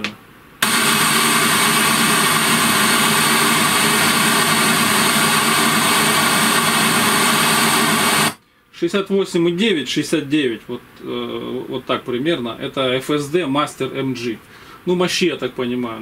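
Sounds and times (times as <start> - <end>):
speaker playing noise test signal: 0.6 - 8.4.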